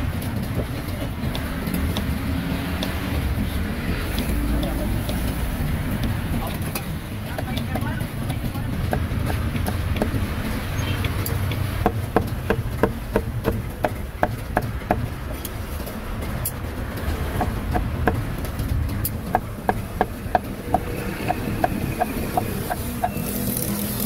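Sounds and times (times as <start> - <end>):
cleaver chopping on wooden block: 6.0 - 15.1.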